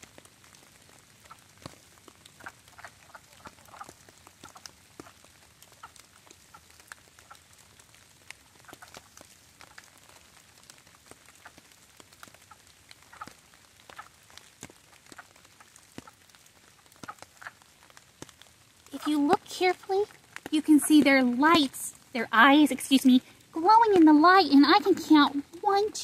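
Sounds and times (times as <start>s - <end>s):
rain ticking: 0.0s - 26.0s
frogs quacking calls: 2.4s - 7.5s.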